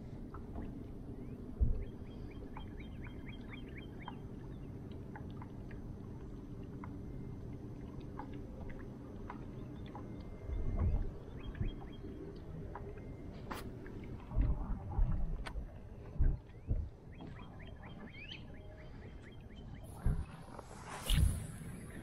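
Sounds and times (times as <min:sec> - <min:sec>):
birds chirping: 0:01.1 - 0:04.8, 0:09.3 - 0:13.2, 0:16.0 - 0:22.0.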